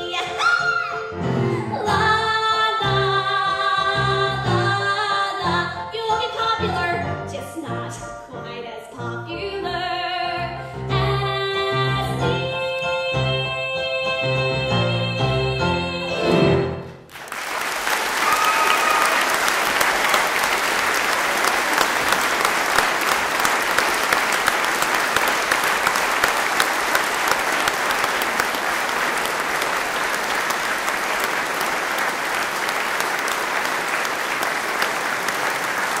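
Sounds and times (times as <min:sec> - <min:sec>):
audience clapping: 0:17.1 - 0:36.0
high call from audience: 0:17.4 - 0:36.0.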